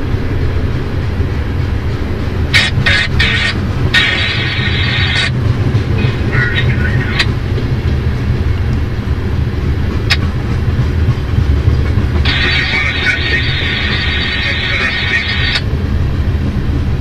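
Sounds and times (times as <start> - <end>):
train wheels rumbling on rail: 0.0 - 17.0
high-pitched noise bursts: 2.6 - 5.3, 12.3 - 15.6.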